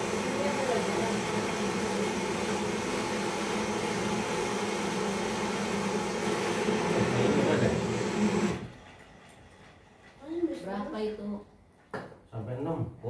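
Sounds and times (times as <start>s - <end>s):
gas torch hissing: 0.0s - 8.7s.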